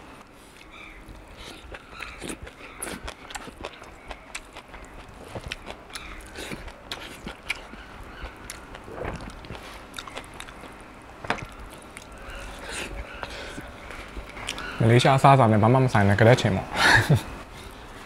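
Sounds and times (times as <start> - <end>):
chewing and mouth smacks: 0.6 - 14.7.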